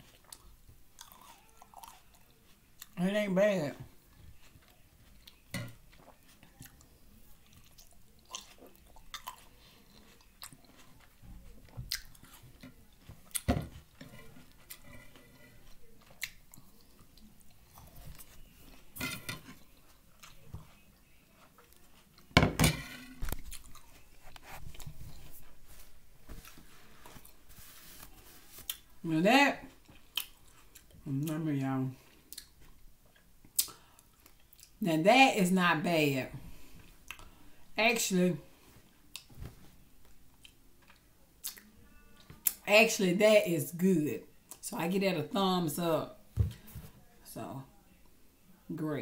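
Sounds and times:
chewing grapes: 0:00.0 - 0:03.0, 0:04.1 - 0:18.8, 0:19.5 - 0:22.4, 0:23.2 - 0:25.6, 0:29.7 - 0:31.3, 0:32.0 - 0:34.8, 0:40.3 - 0:42.6.

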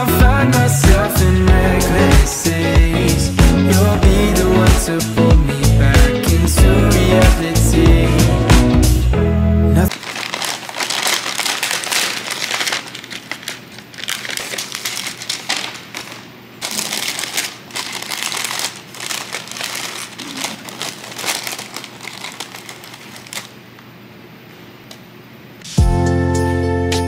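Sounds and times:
paper wrapper crinkling: 0:09.9 - 0:23.7.

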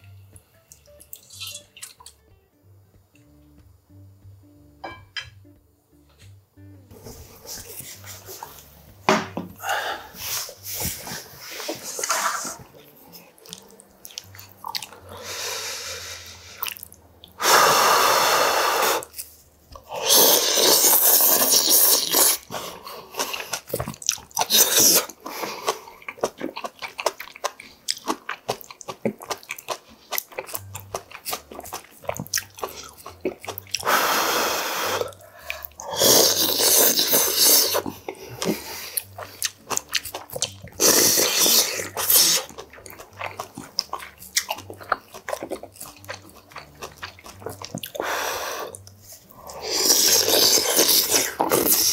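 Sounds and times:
slurping broth from spoon: 0:10.0 - 0:12.8, 0:20.0 - 0:23.6, 0:33.8 - 0:39.3, 0:40.7 - 0:42.6, 0:47.9 - 0:51.9
chewing: 0:10.1 - 0:15.3, 0:16.3 - 0:17.4, 0:19.0 - 0:34.0, 0:34.9 - 0:51.9.

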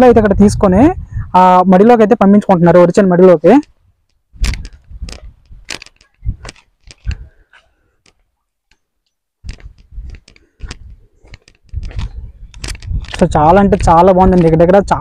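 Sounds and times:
footsteps on a path: 0:03.6 - 0:15.0.

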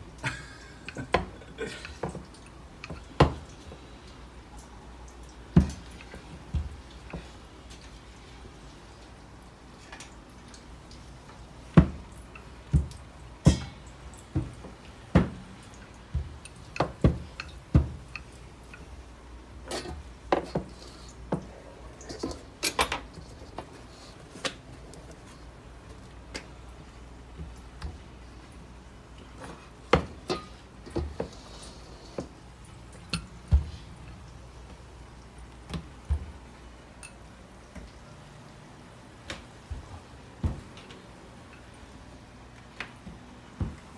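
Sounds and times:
low steady hum: 0:00.0 - 0:43.9
utensils and dishes clinking: 0:29.4 - 0:32.2, 0:37.0 - 0:37.3.

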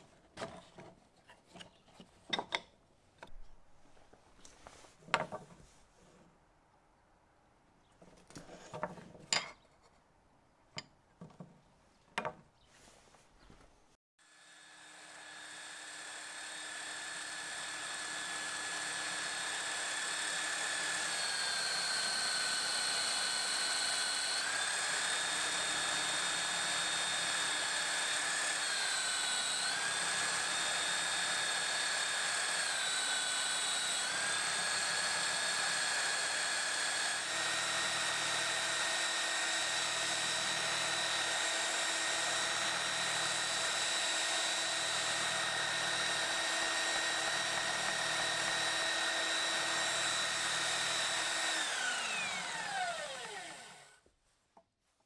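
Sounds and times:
sander motor whine: 0:14.3 - 0:54.0.

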